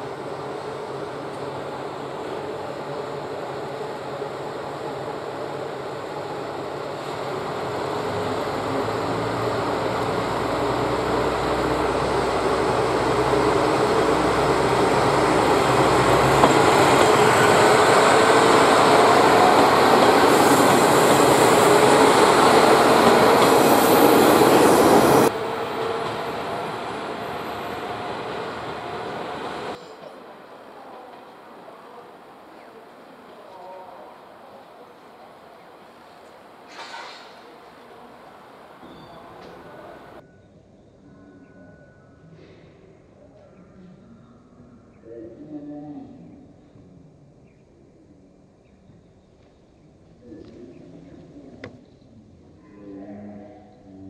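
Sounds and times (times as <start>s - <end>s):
diesel railcar passing: 0.0s - 40.2s.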